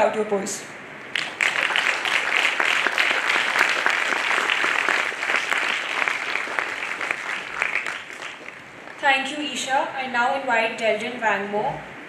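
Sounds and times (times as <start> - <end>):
audience applauding: 1.1 - 9.0.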